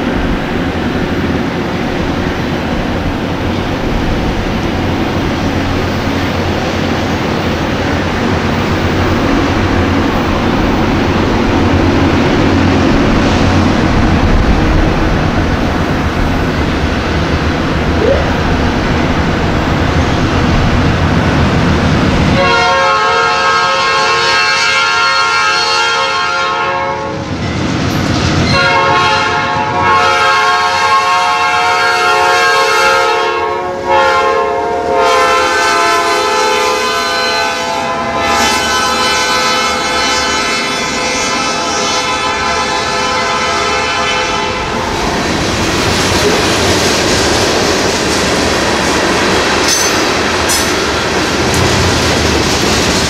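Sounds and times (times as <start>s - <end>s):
locomotives rumbling: 2.1s - 22.2s, 44.7s - 53.0s
freight train horn blasts: 22.3s - 27.2s, 28.5s - 44.8s.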